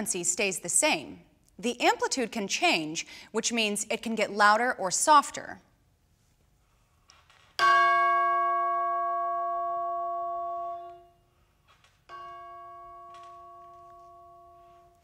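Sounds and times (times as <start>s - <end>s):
tubular bell struck with mallet: 7.6s - 11.1s.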